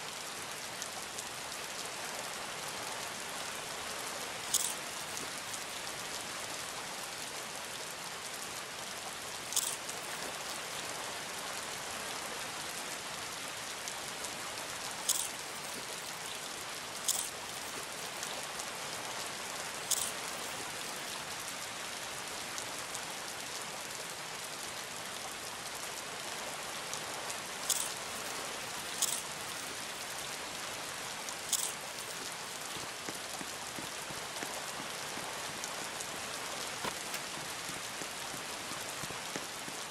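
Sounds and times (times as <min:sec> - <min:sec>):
steady hiss: 0:00.0 - 0:39.9
sharp ticks: 0:15.0 - 0:16.4, 0:17.0 - 0:18.3, 0:19.9 - 0:21.2, 0:27.7 - 0:30.2, 0:31.5 - 0:32.9.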